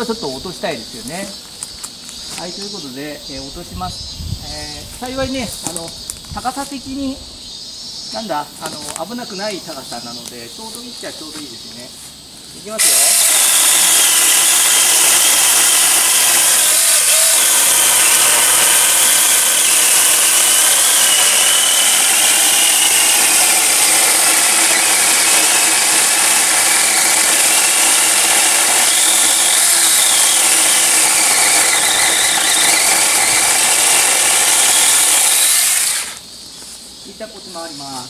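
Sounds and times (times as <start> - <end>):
electric chainsaw cutting branch: 12.8 - 36.2.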